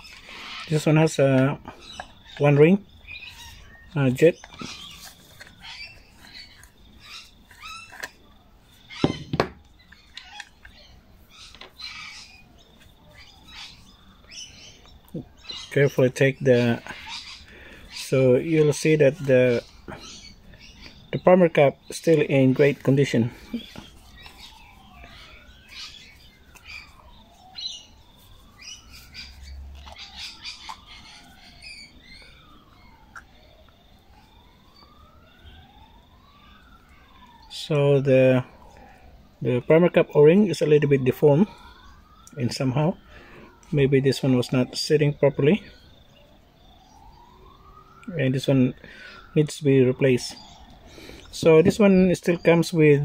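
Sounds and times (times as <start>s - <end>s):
faint bird calls: 0.0s - 37.5s
distant siren wailing: 0.0s - 53.0s.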